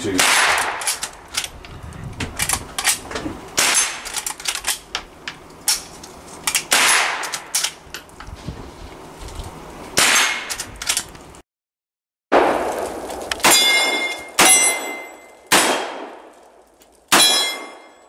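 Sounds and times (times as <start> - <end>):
rifle shots: 0.1 - 1.1, 3.6 - 4.1, 6.7 - 7.5, 12.3 - 16.3
bullets clanging on steel targets: 3.6 - 4.8, 13.4 - 16.3, 17.1 - 18.0.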